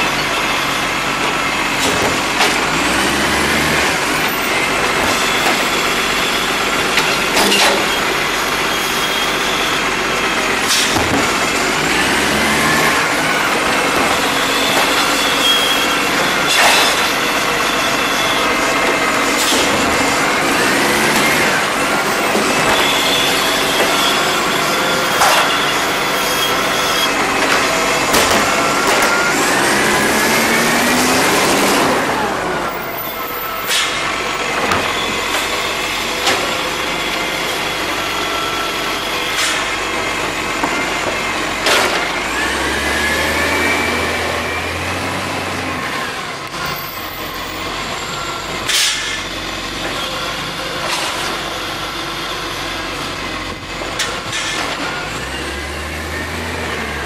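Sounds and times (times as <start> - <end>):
diesel engine revving: 0.0 - 57.0
air brake hisses: 10.7 - 11.0, 33.7 - 34.0, 48.7 - 49.3.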